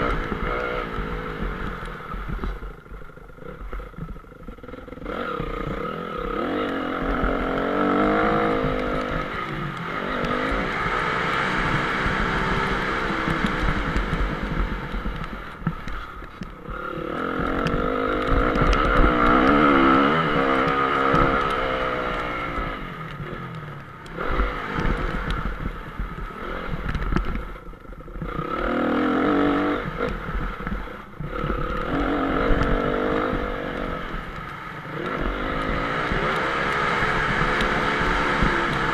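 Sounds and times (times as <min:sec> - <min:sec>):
motocross engine revving: 0:00.0 - 0:01.8, 0:04.4 - 0:15.1, 0:16.7 - 0:22.9, 0:31.3 - 0:38.9.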